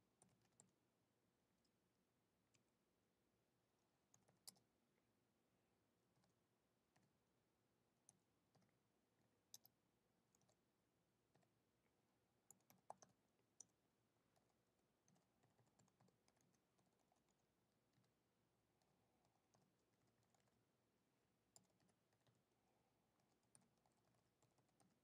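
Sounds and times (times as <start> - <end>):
keyboard typing clicks: 12.5 - 13.7.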